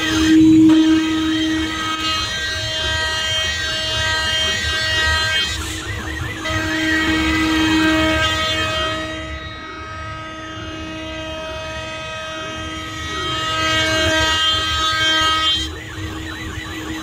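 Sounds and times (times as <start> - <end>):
milling machine cutting metal: 0.0 - 8.4.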